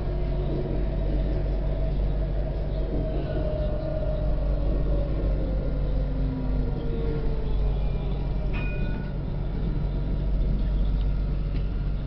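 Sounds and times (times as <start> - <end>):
tram rumbling on rails: 0.0 - 12.0.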